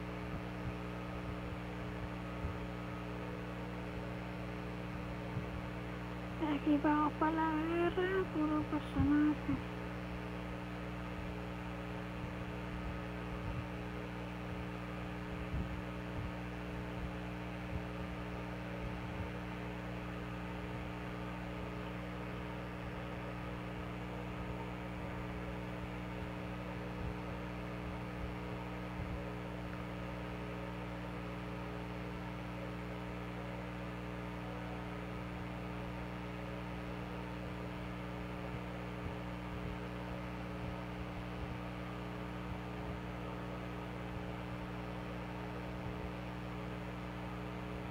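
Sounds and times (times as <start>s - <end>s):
steady low hum: 0.0s - 47.9s.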